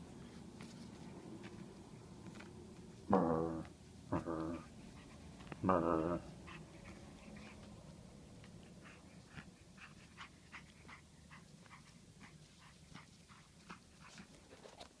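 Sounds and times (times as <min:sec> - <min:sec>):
puppy whimpering and grunting: 0:03.1 - 0:07.4.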